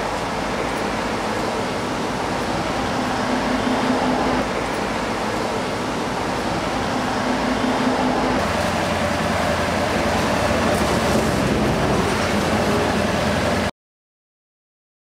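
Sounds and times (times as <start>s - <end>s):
traffic hum: 0.0s - 13.7s.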